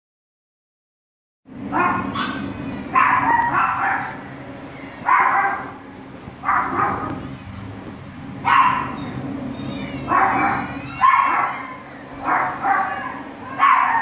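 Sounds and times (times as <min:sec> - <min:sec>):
steady low hum: 0:01.5 - 0:14.0
dog barking: 0:01.7 - 0:04.2, 0:05.0 - 0:05.8, 0:06.4 - 0:07.2, 0:08.4 - 0:09.1, 0:10.0 - 0:14.0.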